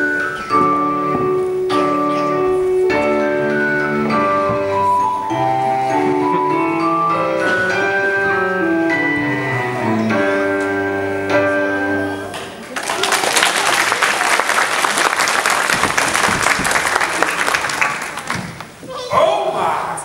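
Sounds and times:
ballet music with piano: 0.0 - 12.7
audience applause: 12.6 - 18.8.

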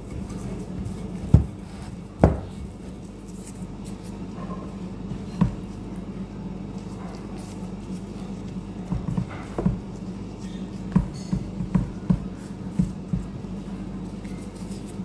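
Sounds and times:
steady low hum: 0.0 - 15.0
dull knocks on worktop: 2.2 - 2.6.

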